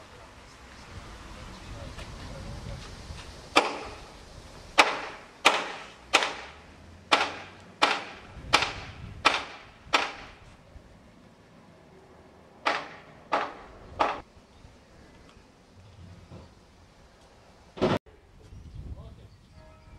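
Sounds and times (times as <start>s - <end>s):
hammer striking metal: 3.6s - 4.0s, 4.8s - 10.4s.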